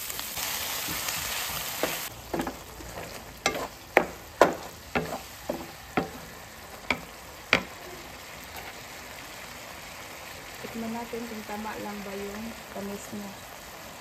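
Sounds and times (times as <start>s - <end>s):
faint steady sizzle: 0.0s - 14.0s
spatula scraping a frying pan: 0.8s - 7.8s, 8.4s - 8.8s.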